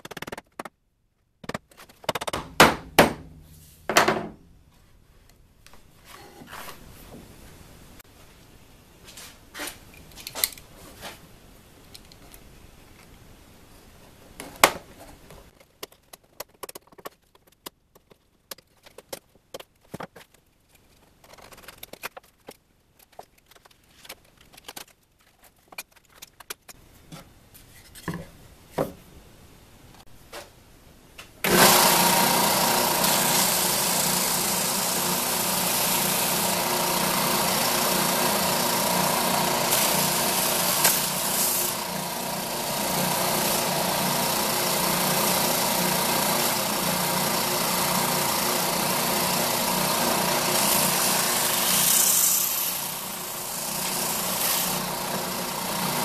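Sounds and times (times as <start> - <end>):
belt sander motor hum: 31.5 - 56.0.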